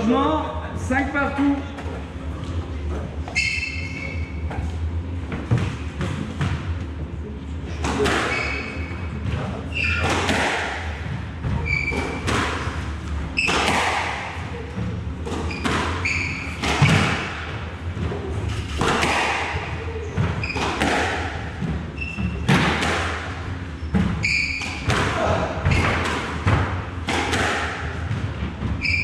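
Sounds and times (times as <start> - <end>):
squash ball struck by rackets: 9.8 - 12.8, 13.4 - 14.4, 15.3 - 17.5, 18.7 - 21.8, 22.4 - 28.3
shoes squeaking on wooden floor: 11.6 - 12.2, 15.4 - 16.7, 23.8 - 24.8, 28.7 - 29.0.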